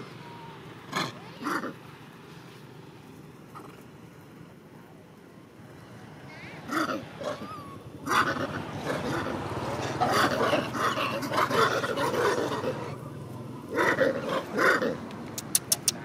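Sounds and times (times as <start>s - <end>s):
macaques calling: 6.3s - 13.0s.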